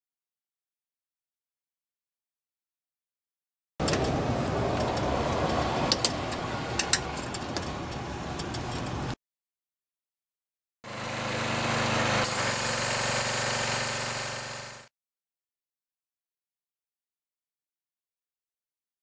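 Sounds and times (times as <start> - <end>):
rattly mechanical noise: 3.8 - 9.2, 10.9 - 14.9
pressure washer engine running: 10.8 - 14.9
spray wand hissing: 11.7 - 14.9.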